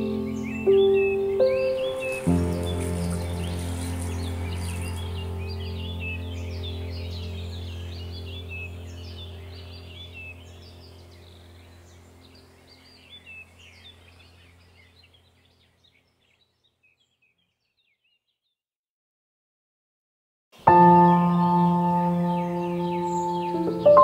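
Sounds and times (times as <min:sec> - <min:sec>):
birds chirping: 0:00.0 - 0:18.6, 0:20.6 - 0:24.0
steady low hum: 0:02.1 - 0:15.4.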